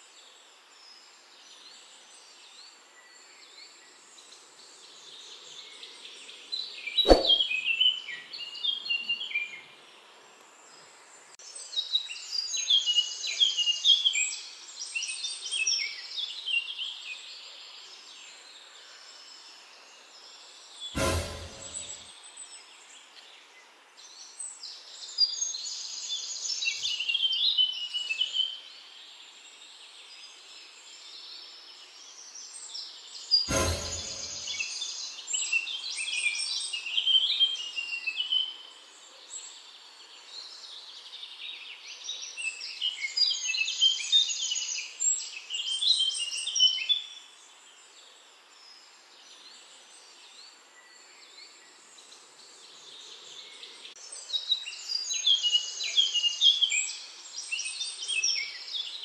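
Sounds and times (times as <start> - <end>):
bird singing high chirps: 7.0 - 7.9
sharp knock: 7.1 - 7.4, 21.0 - 22.0, 33.5 - 34.6.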